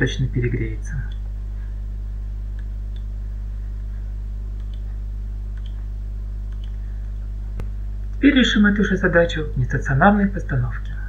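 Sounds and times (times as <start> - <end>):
low electrical hum: 0.0 - 11.0
faint clicks: 2.5 - 3.1, 4.6 - 4.9, 5.5 - 5.8, 6.5 - 6.8.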